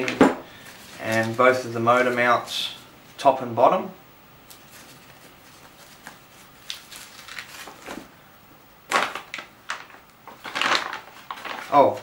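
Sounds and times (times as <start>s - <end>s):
plastic bags crinkling: 0.0s - 2.2s, 4.5s - 8.1s, 8.9s - 12.0s.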